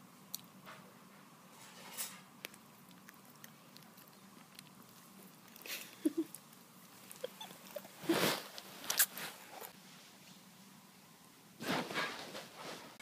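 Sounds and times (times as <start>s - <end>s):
bedding rustle: 7.8s - 10.4s, 11.6s - 13.0s.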